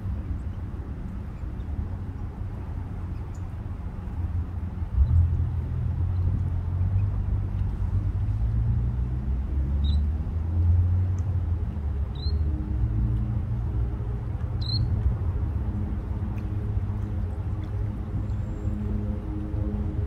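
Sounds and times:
faint hum: 0.0 - 20.0
low rumble: 0.0 - 20.0
sandpipers peeping: 14.6 - 15.0.

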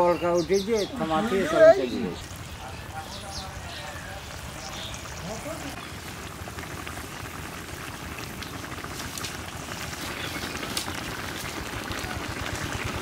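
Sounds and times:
curry bubbling with pops: 3.3 - 13.0.

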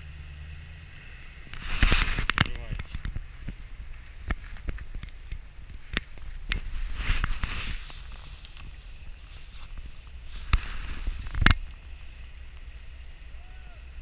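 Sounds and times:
steady low rumble: 0.0 - 14.0
handheld camera knocks and rustling: 1.6 - 3.6, 4.2 - 8.8
footsteps through wet grass and mud: 1.6 - 11.7.

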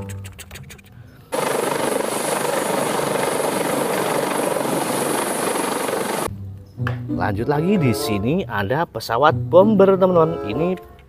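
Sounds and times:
helicopter rotor and engine: 1.3 - 6.3.

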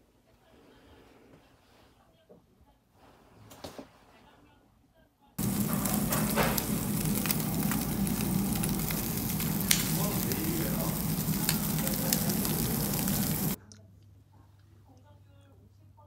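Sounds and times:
fat popping and crackling: 5.4 - 13.6
meat sizzling over charcoal: 5.4 - 13.6.

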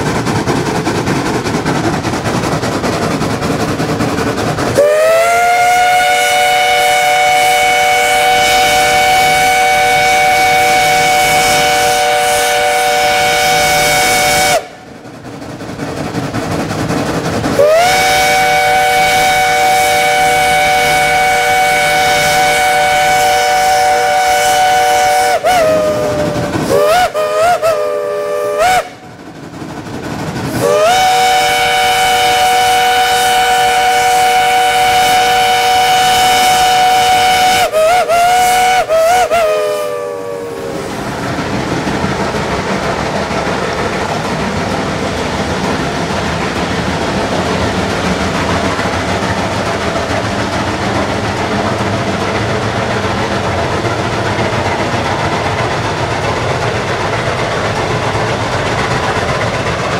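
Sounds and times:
steam hissing: 0.0 - 59.9
steam locomotive chime whistle: 4.8 - 14.8, 17.6 - 29.0, 30.6 - 40.9.

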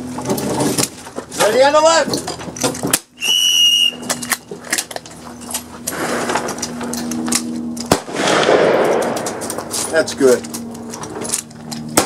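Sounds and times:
rifle shots cracking: 7.8 - 9.8.

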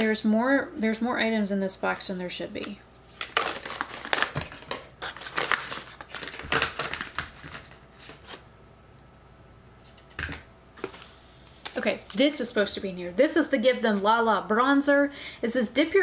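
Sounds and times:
paper cards and packaging rustling: 3.1 - 8.4, 9.8 - 12.5.

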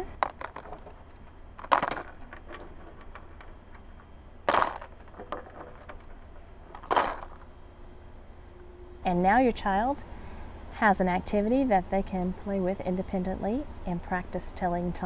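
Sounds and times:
stones clacking in plastic container: 0.1 - 1.0, 1.6 - 3.5, 4.5 - 6.1, 6.7 - 7.4.

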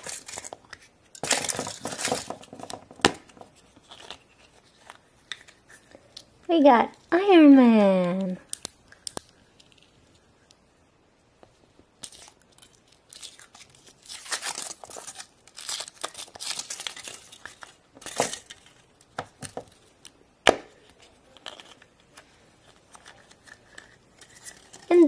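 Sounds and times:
foil wrapper crinkling and tearing: 0.0 - 2.5, 12.0 - 19.1
chocolate shell snapping: 8.5 - 9.3.

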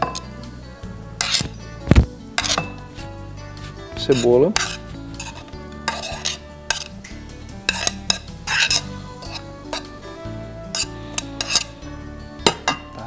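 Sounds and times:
soft background music: 0.0 - 13.0
food scraped off a plate: 1.2 - 1.6, 4.2 - 7.0, 7.7 - 9.9, 10.8 - 11.8.

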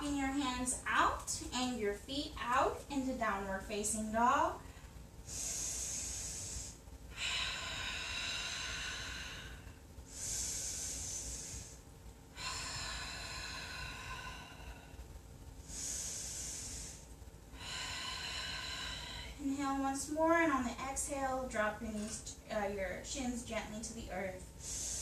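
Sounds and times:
woman breathing slowly: 4.6 - 22.5, 23.8 - 25.0.

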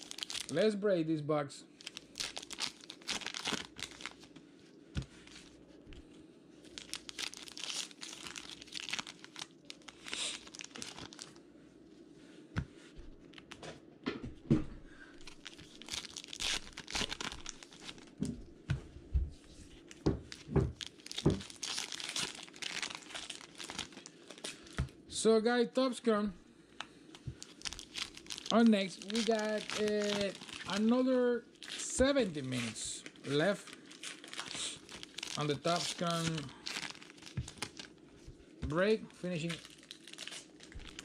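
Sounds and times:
paper wrappers tearing and crinkling: 0.0 - 0.7, 1.8 - 4.3, 6.6 - 11.4, 15.2 - 18.2, 20.3 - 24.8, 27.4 - 38.0, 38.8 - 41.0.

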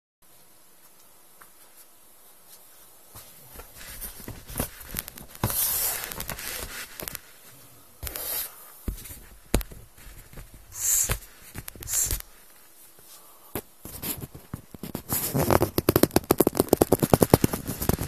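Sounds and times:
loud hissing rustle: 2.4 - 8.9, 10.0 - 14.2
vinyl rustling and squeaking: 3.6 - 7.3, 13.9 - 18.0.

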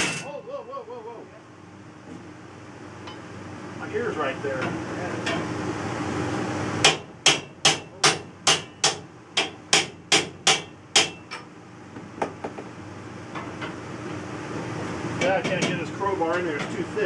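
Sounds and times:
hammer striking metal wall: 6.8 - 11.5.

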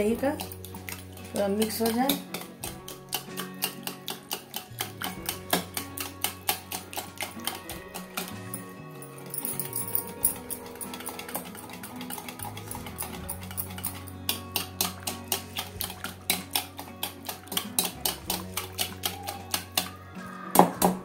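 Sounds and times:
whisk tapping plastic bowl: 0.0 - 8.5, 10.7 - 19.9
soft background music: 0.0 - 21.0.

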